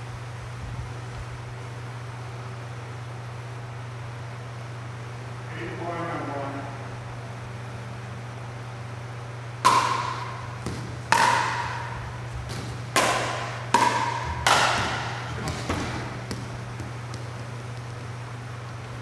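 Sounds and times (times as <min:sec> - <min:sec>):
ball bouncing: 0:09.6 - 0:19.0
paddles hitting plastic ball: 0:09.6 - 0:19.0.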